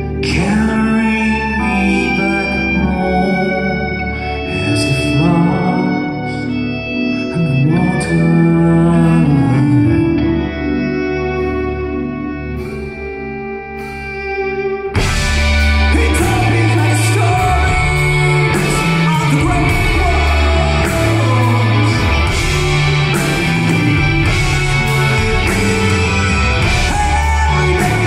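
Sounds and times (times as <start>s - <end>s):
person singing: 0.0s - 13.1s, 15.0s - 28.0s
held keyboard chords: 0.0s - 28.0s
live rock band playing: 0.0s - 28.0s.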